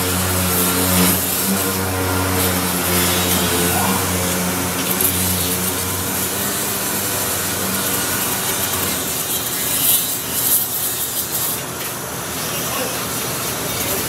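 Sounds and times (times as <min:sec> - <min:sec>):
sanding on metal: 0:00.0 - 0:11.8.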